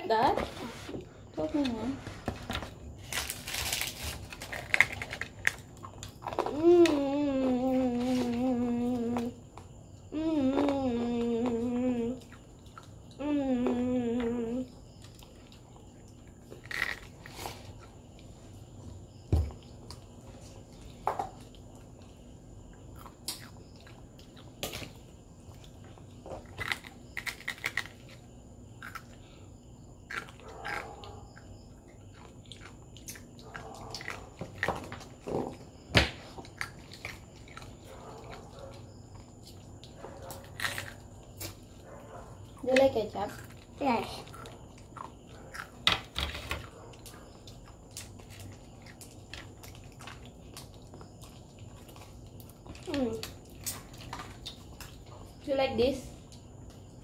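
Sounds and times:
child chewing crispy chicken: 0:02.3 - 0:55.4.

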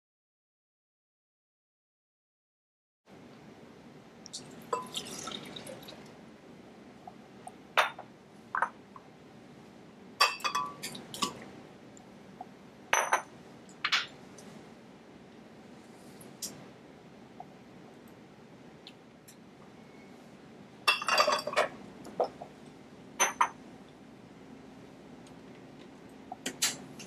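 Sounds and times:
cups clinking against glass: 0:04.7 - 0:05.7, 0:07.8 - 0:08.0, 0:10.2 - 0:11.4, 0:13.0 - 0:13.3, 0:20.9 - 0:22.4, 0:23.2 - 0:23.6
juice pouring into blender jar: 0:04.8 - 0:06.1.

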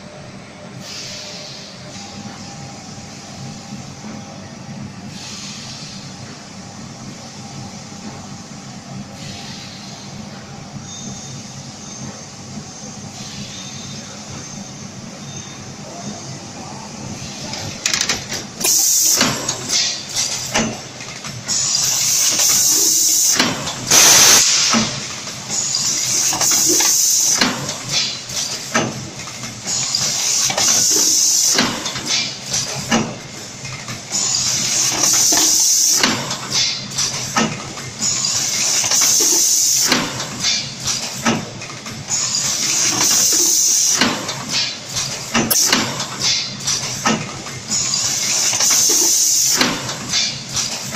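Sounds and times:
compressed air hissing: 0:00.8 - 0:02.0, 0:05.1 - 0:06.1, 0:18.6 - 0:19.3, 0:21.5 - 0:28.1
machine clicks and knocks: 0:17.5 - 0:21.6, 0:26.2 - 0:34.1, 0:34.7 - 0:50.9.

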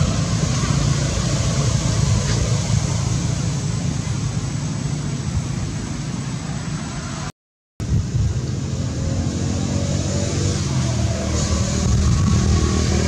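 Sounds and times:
low unsteady rumble: 0:07.8 - 0:09.2.

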